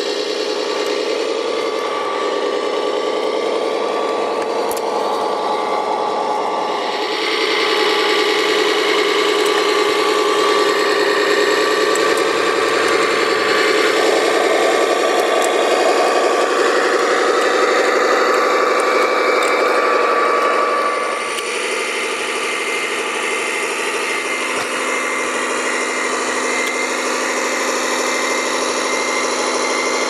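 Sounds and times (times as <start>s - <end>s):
tracked crawler drive whining: 0.0s - 30.0s.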